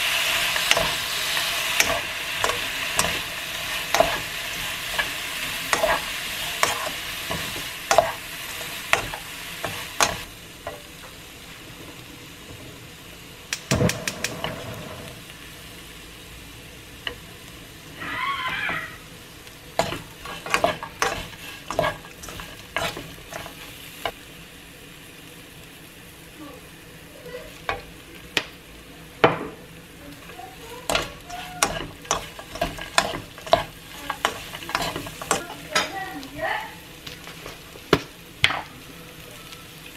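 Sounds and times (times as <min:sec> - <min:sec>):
fish sizzling in a wok: 0:00.0 - 0:39.9
wooden spoons tapping and scraping pan: 0:00.6 - 0:01.0, 0:01.7 - 0:11.1, 0:19.8 - 0:24.1, 0:30.2 - 0:36.4, 0:37.3 - 0:38.7.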